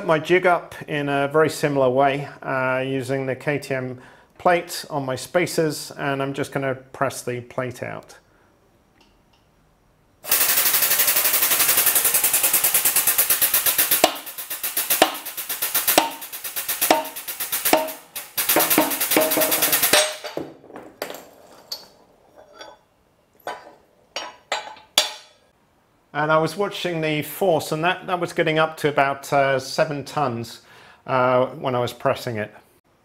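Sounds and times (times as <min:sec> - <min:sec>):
hydraulic press pumping: 0:10.3 - 0:20.1
sharp metal knocks: 0:13.8 - 0:21.9, 0:23.4 - 0:25.4.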